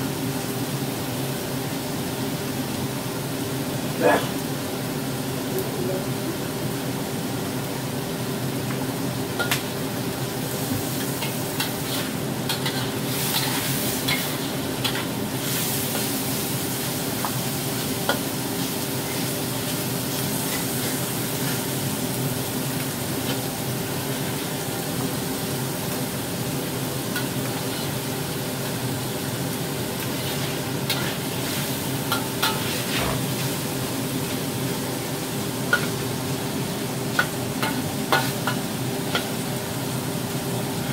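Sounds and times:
food sizzling in a wok: 0.0s - 40.9s
spatula scraping wok: 10.5s - 21.8s, 27.1s - 28.3s, 29.9s - 34.6s, 35.2s - 36.5s, 37.1s - 39.5s.

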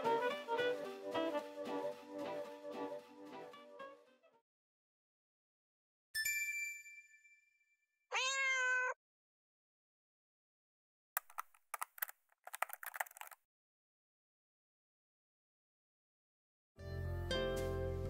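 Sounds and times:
cat meow: 8.1s - 9.0s
clicks and crackles: 11.2s - 13.4s.

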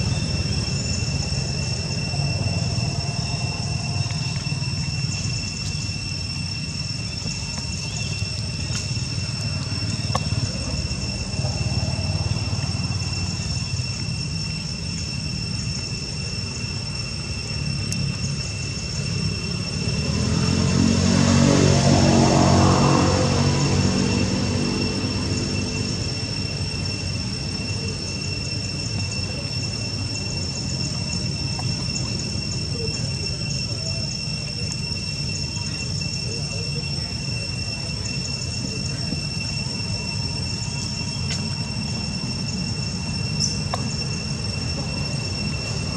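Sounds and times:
motor vehicle engine rumble: 0.0s - 16.9s
steady high-pitched whine: 0.0s - 45.9s.

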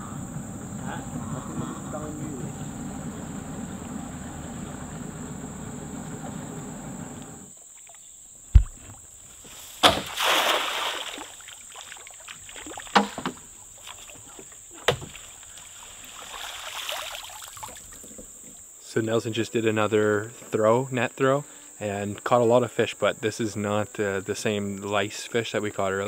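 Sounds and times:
steady low rumble: 0.0s - 7.5s
sharp thump: 8.5s - 9.0s, 9.8s - 10.2s
net splashing into water: 9.6s - 13.2s, 15.1s - 17.9s.

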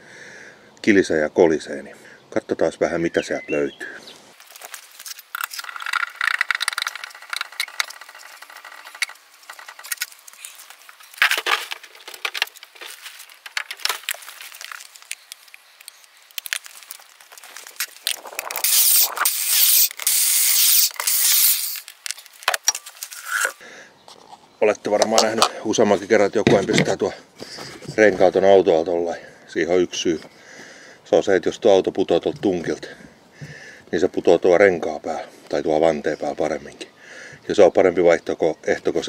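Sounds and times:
metal scraping and rustling: 4.5s - 15.2s
scissor jack cranking: 18.5s - 21.9s.

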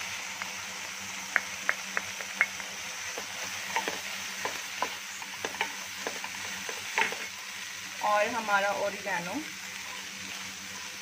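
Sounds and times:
vegetables sizzling in a pan: 0.0s - 11.0s
spatula scraping and knocking pan: 1.4s - 7.4s.

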